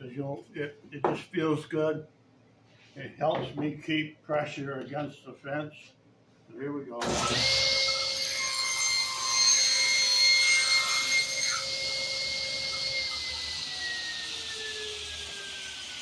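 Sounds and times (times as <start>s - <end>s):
table saw whining: 7.0s - 16.0s.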